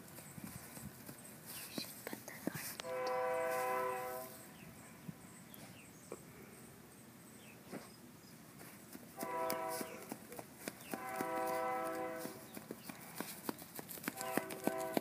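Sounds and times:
horn blasts: 2.8 - 4.5, 9.2 - 10.1, 10.9 - 12.5, 14.2 - 15.0.

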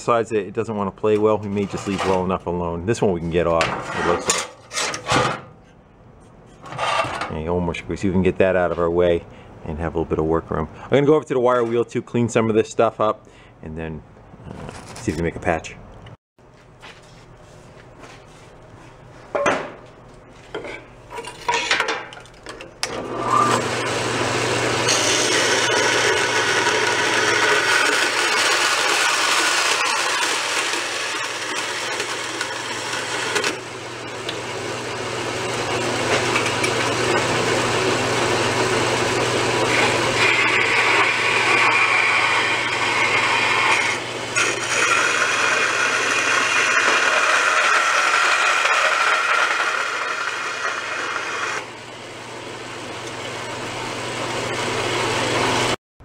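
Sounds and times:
bandsaw cutting metal: 22.9 - 51.7.

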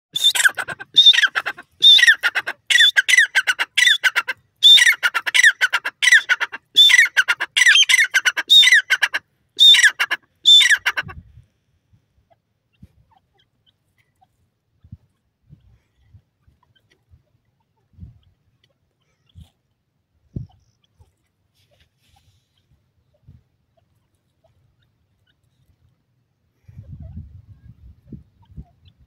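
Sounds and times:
francolin calling: 0.2 - 11.1.

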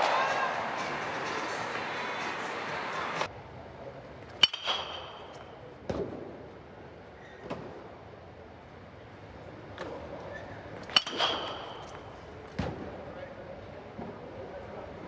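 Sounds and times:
hall noise: 0.0 - 3.3
metal bat hitting ball: 4.4 - 5.6, 10.8 - 12.1.

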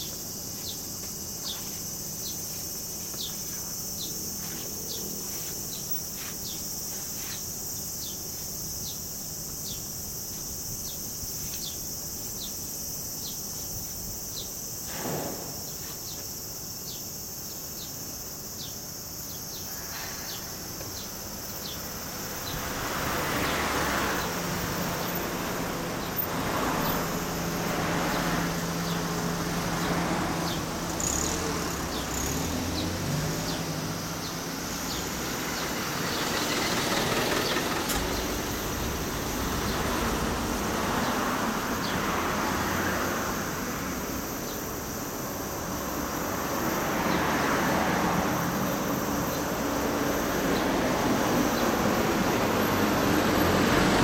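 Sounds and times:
steady engine hum: 21.4 - 54.0
motor vehicles passing: 21.6 - 54.0.

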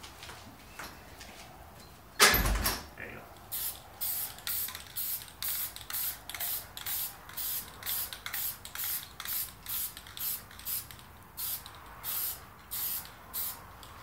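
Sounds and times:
spray paint can hissing: 3.4 - 14.0.

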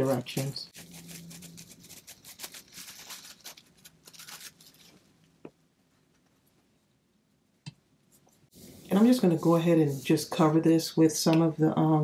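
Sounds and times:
plastic wrap crinkling: 0.1 - 5.3.

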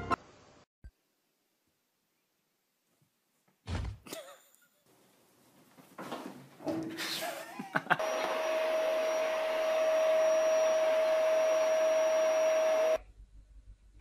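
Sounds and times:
electric motor whine: 8.0 - 13.0.

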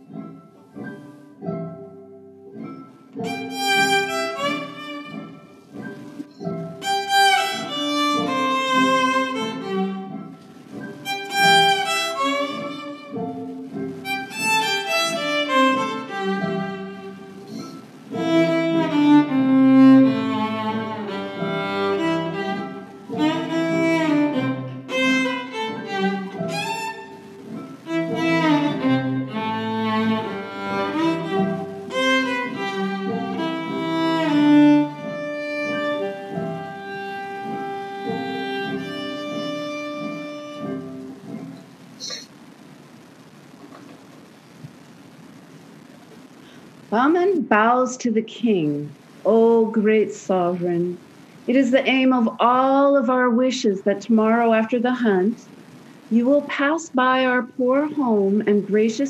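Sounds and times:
bowed violin melody: 2.6 - 41.6.

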